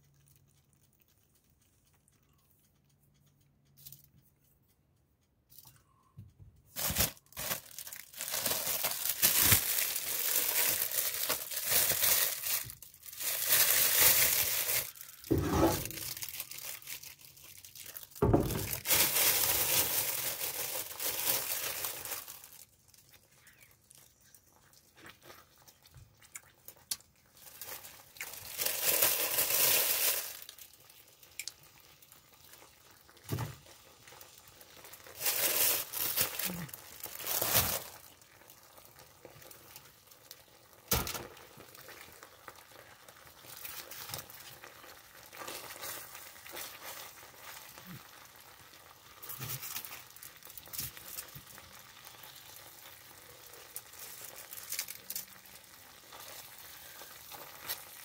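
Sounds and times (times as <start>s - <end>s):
crinkling and rustling: 5.5s - 31.6s, 32.5s - 48.2s, 48.8s - 52.7s.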